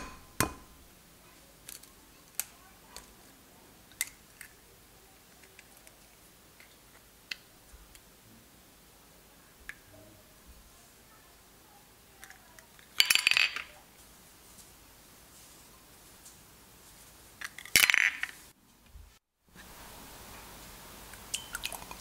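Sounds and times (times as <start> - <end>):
eggshells tapping ceramic bowls: 0.0 - 0.8.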